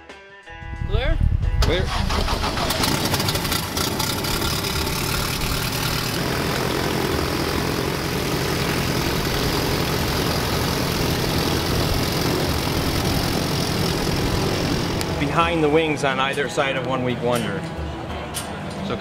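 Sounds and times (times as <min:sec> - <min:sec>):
small airplane engine idling: 0:02.0 - 0:15.5.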